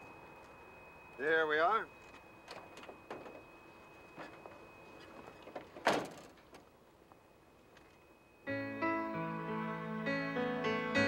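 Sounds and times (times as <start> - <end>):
soft piano music: 8.4 - 11.0.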